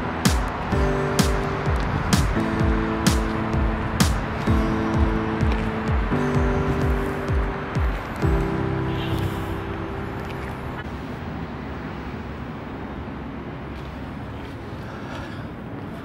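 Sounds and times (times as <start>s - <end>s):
background music: 0.0s - 10.8s
road traffic noise: 0.0s - 16.0s.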